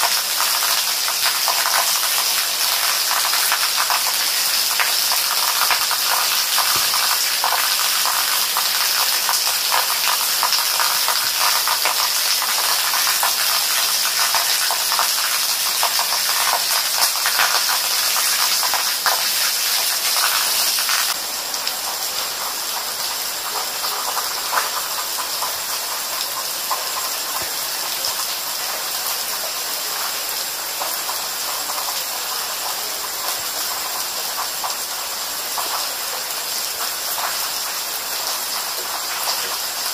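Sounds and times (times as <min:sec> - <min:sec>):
rain pattering on leaves: 0:00.0 - 0:39.9.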